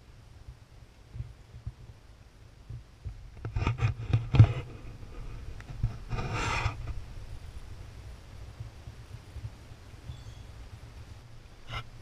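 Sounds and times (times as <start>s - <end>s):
scraping rub: 3.4s - 7.0s, 11.6s - 12.0s.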